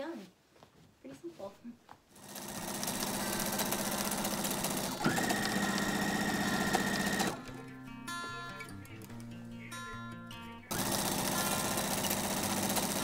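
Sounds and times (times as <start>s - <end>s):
sewing machine stitching: 2.2s - 7.4s, 10.7s - 13.0s
background music: 2.2s - 13.0s.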